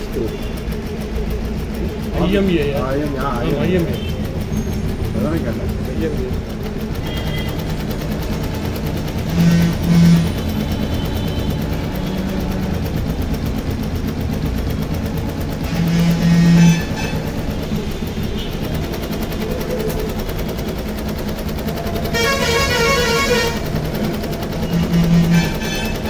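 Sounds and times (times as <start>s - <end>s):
embroidery machine stitching: 0.0s - 26.0s
warbling horn-like tone: 9.3s - 12.2s, 15.6s - 17.6s, 24.6s - 26.0s.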